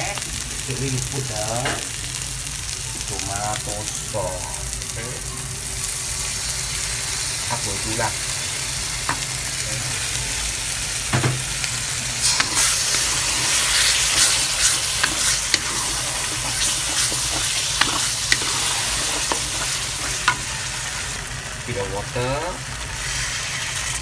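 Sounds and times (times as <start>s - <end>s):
sauce sizzling in oil: 0.0s - 24.0s
spatula scraping a pan: 12.2s - 21.2s.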